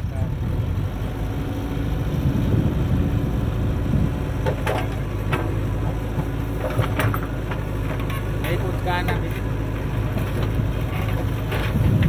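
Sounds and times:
diesel engine running: 0.0s - 12.0s
bucket clanks and knocks: 6.6s - 9.2s.

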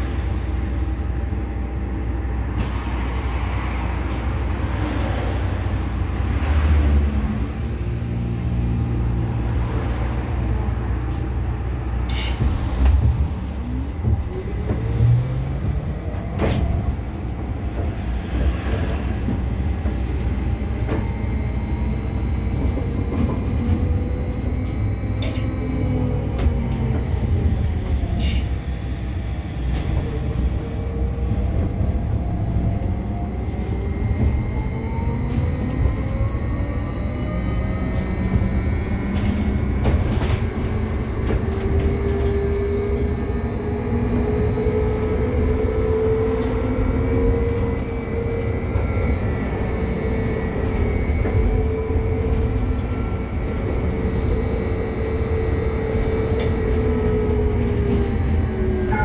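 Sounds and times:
low road rumble: 0.0s - 59.0s
electric traction drive whining: 12.4s - 59.0s.

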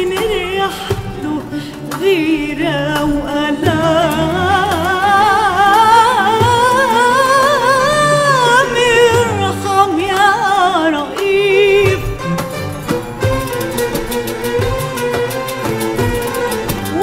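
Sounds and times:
woman singing with vibrato: 0.0s - 12.5s.

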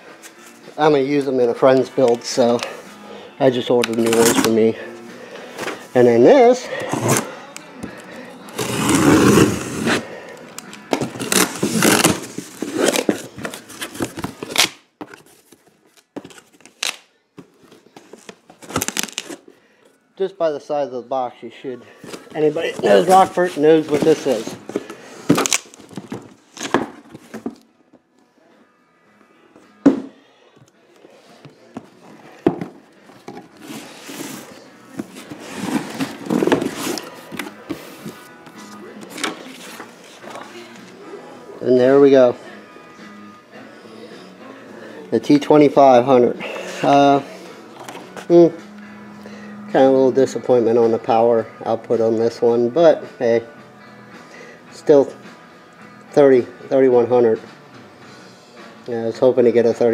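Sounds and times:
cardboard tearing and rustling: 11.0s - 14.8s, 18.1s - 19.4s, 22.7s - 27.0s, 33.6s - 37.5s
cardboard scraping and rustling: 33.3s - 38.2s.

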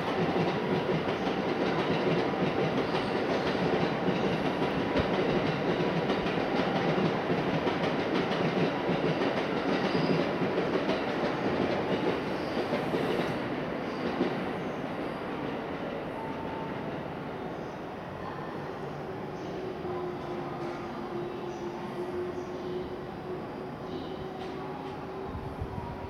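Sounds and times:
train wheels rumbling on rail: 0.0s - 17.2s.

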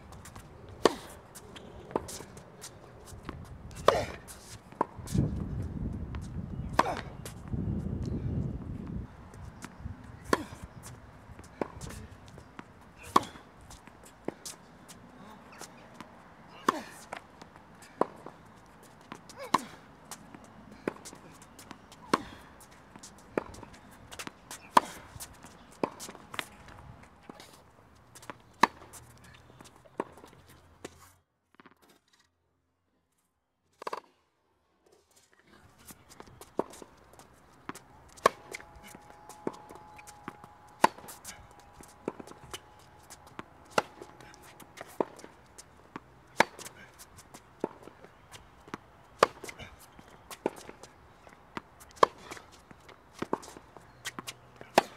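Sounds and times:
tennis ball popping off racquet: 37.6s - 46.8s, 51.5s - 54.9s.

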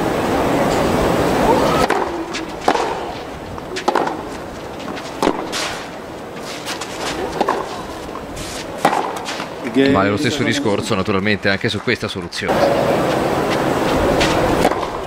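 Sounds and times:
tennis racket hitting ball: 1.8s - 9.6s, 14.2s - 15.0s.

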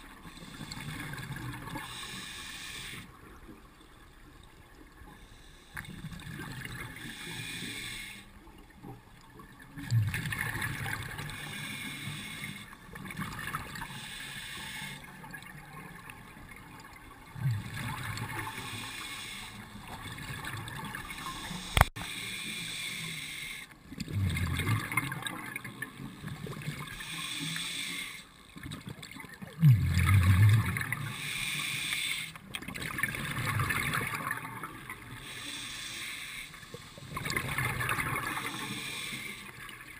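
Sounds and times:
diver breathing through regulator: 1.8s - 3.1s, 6.9s - 8.3s, 11.2s - 12.8s, 13.8s - 15.1s, 18.4s - 19.8s, 21.0s - 23.7s, 26.8s - 28.4s, 31.0s - 32.4s, 35.2s - 39.6s.

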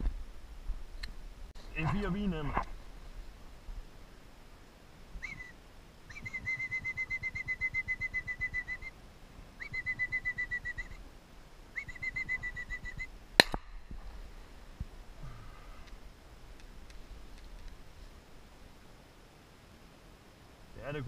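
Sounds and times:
high trilled whistle: 5.2s - 5.5s, 6.1s - 8.9s, 9.6s - 11.0s, 11.8s - 13.1s.

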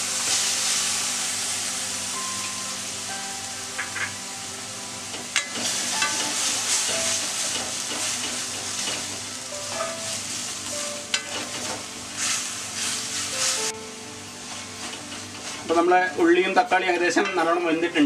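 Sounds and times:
food sizzling in a pan: 0.0s - 17.7s
spatula scraping a pan: 11.1s - 13.6s.

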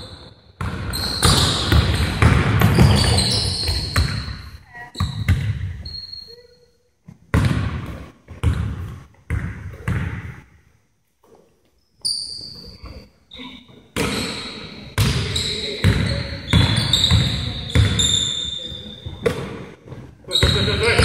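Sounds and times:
basketball bouncing on wooden floor: 0.6s - 4.3s, 7.3s - 10.4s.

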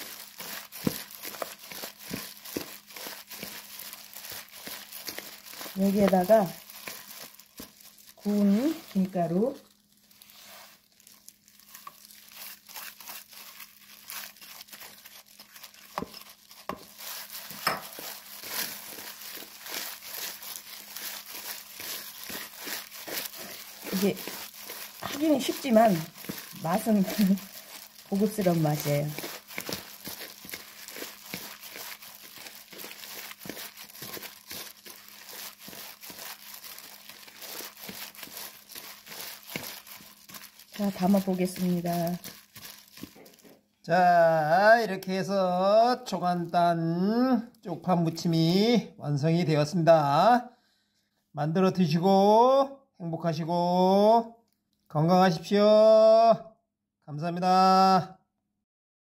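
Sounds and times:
greens rustling in bowl: 0.0s - 43.6s
plastic glove crinkling: 0.0s - 48.3s.

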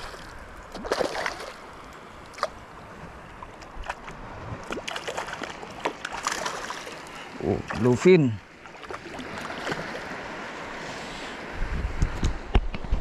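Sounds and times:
short sharp splashes: 0.0s - 1.6s, 3.8s - 7.1s, 8.7s - 10.1s
shallow water splashing: 0.0s - 10.9s.

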